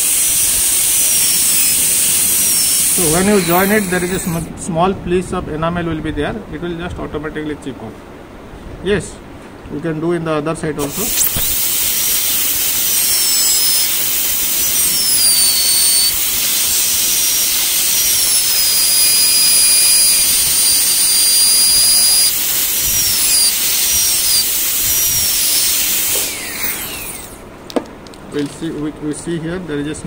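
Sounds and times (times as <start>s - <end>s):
water spray hiss: 0.0s - 4.4s
dental drill high-pitched whine: 0.0s - 4.5s, 10.8s - 27.4s.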